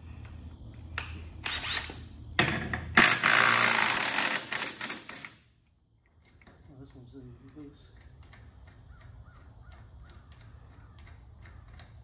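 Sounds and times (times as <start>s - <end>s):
power tool running: 1.4s - 2.0s, 3.0s - 5.4s.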